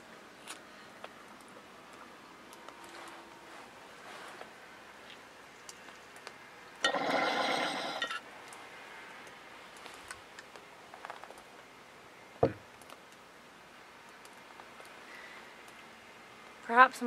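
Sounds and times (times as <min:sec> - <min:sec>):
breathy exhale: 0:15.1 - 0:15.5.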